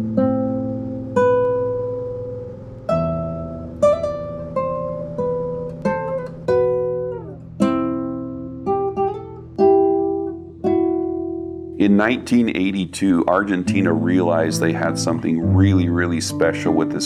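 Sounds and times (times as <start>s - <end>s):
plucked string instrument melody: 0.0s - 17.0s
held low note: 11.8s - 17.0s.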